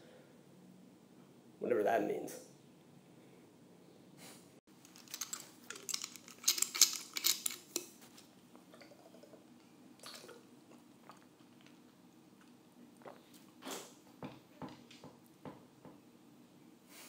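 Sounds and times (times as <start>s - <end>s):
hip flask clicks and clinks: 4.8s - 8.0s.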